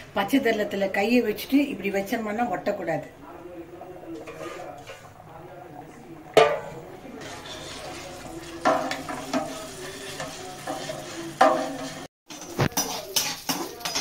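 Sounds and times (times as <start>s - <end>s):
ladle scraping a metal pot: 4.1s - 5.2s, 6.4s - 14.0s.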